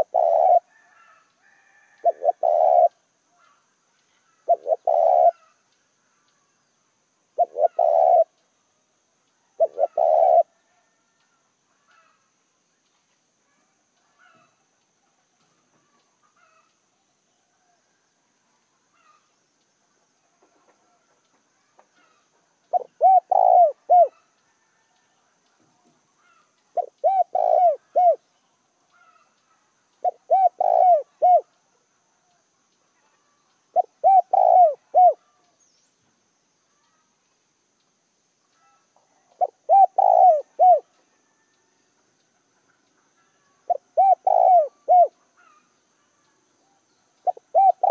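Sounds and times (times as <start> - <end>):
dove cooing: 0.0 - 3.0, 4.3 - 5.5, 7.4 - 8.3, 9.6 - 11.0, 22.7 - 24.2, 26.2 - 28.2, 30.0 - 31.5, 33.7 - 35.4, 38.6 - 40.9, 43.4 - 45.6, 47.2 - 47.9.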